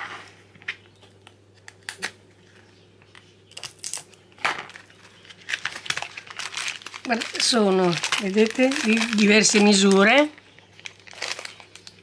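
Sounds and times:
plastic bag crinkling: 0:03.8 - 0:12.0.

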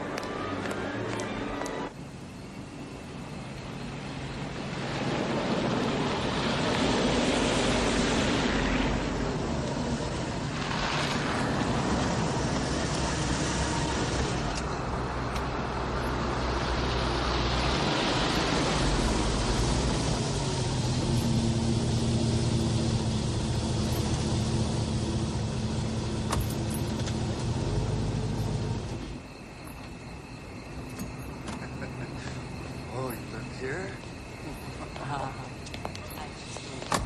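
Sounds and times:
cars driving past: 0:03.7 - 0:29.3.

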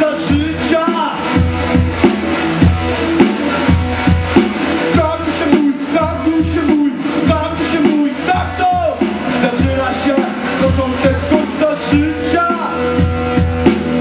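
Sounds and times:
man singing into microphone: 0:00.0 - 0:01.3, 0:04.9 - 0:13.1
electric guitar: 0:00.0 - 0:14.0
steady drum beat: 0:00.0 - 0:14.0.

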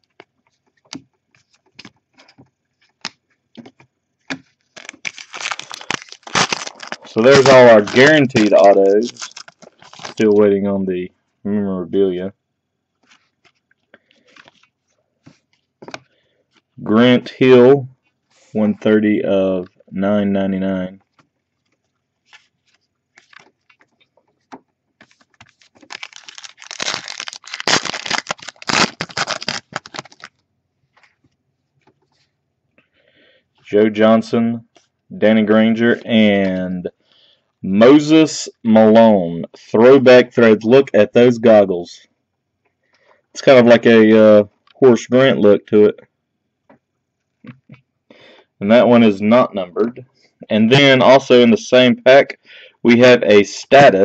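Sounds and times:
foil pack crinkling and tearing: 0:04.6 - 0:10.3, 0:25.0 - 0:30.4.

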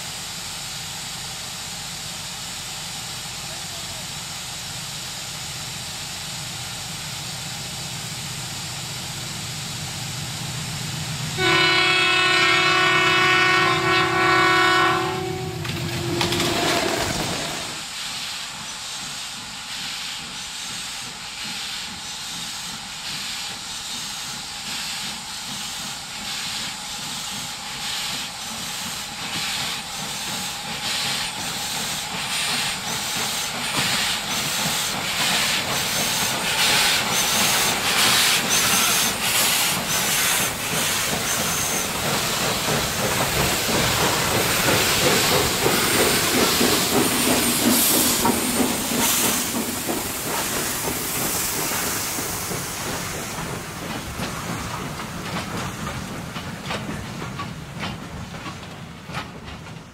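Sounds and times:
steam locomotive chuffing: 0:00.0 - 0:59.9
hissing steam: 0:16.9 - 0:59.5.

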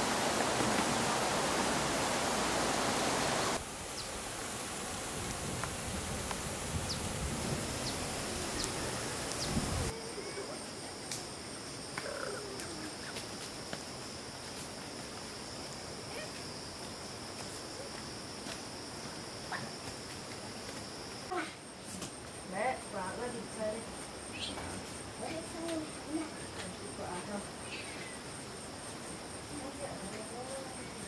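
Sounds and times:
steady rushing noise: 0:00.0 - 0:09.9
faint chirps: 0:24.3 - 0:24.8.

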